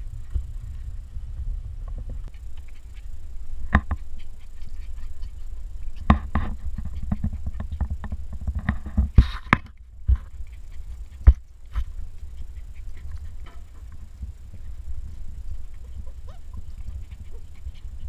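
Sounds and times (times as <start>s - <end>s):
handling noise on camera: 5.9s - 10.5s.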